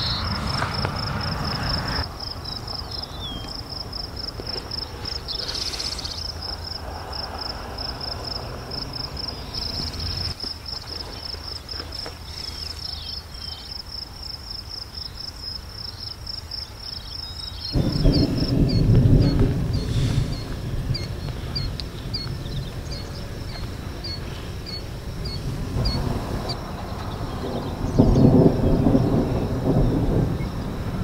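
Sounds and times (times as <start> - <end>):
crickets chirping: 0.0 - 31.0
low rumble: 17.8 - 31.0.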